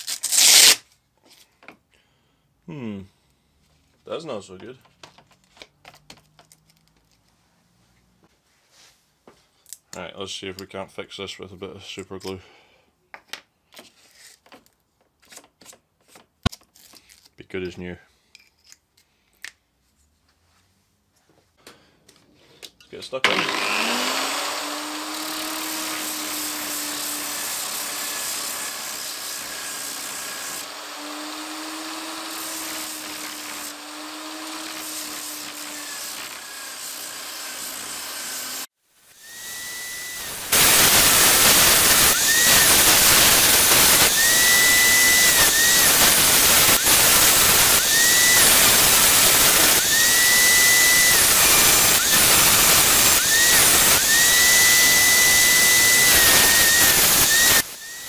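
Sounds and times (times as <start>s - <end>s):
wood sanding hiss: 29.3s - 58.0s.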